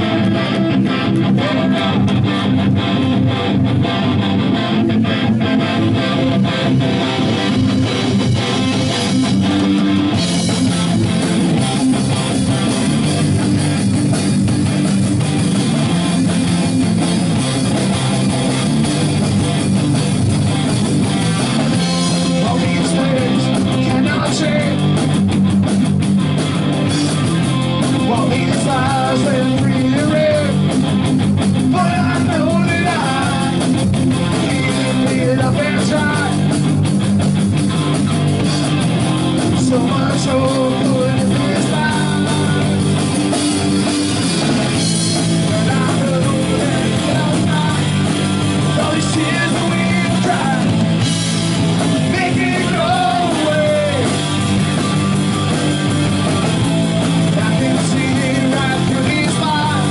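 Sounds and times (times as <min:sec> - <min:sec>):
person singing: 0:00.0 - 0:02.5, 0:22.0 - 0:24.9, 0:28.0 - 0:30.7, 0:31.7 - 0:36.5, 0:39.4 - 0:43.0, 0:45.4 - 0:50.8, 0:52.0 - 0:54.4, 0:57.2 - 0:59.9
punk rock band playing: 0:00.0 - 0:59.9.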